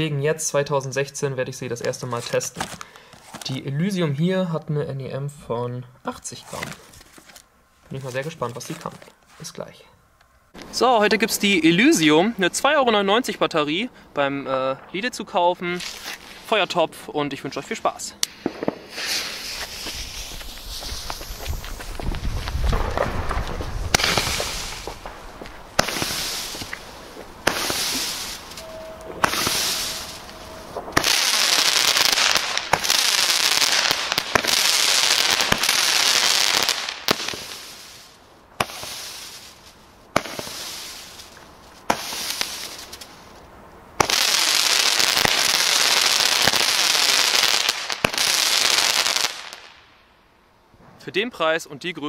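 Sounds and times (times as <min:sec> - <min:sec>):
firework launch bangs: 0:18.2 - 0:43.1
hissing rush of sparks: 0:18.2 - 0:43.4.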